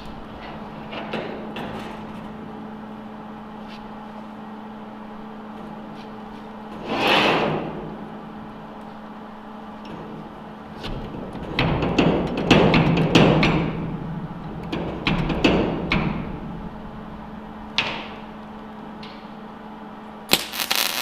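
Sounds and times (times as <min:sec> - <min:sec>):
welding crackle: 0:20.3 - 0:21.0.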